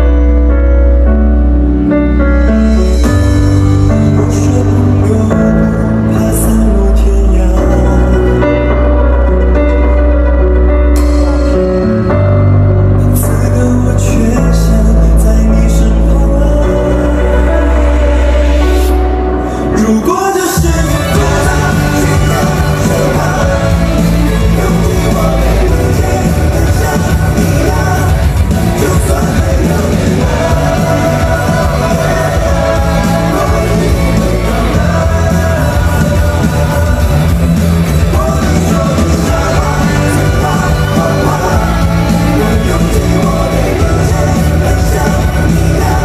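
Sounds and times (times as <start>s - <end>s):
amplified backing track with bass: 0.0s - 46.0s
man singing into microphone: 2.4s - 9.0s, 13.0s - 46.0s.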